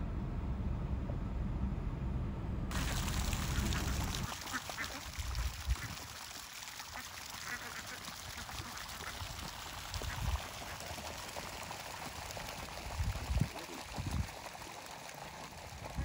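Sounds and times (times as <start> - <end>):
ducks quacking: 2.7 - 6.1, 6.8 - 11.0.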